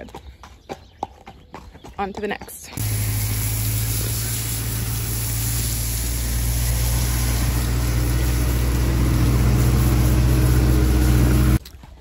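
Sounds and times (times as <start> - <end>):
hiss of water spray: 2.8 - 11.6
pressure washer motor humming: 2.8 - 11.6.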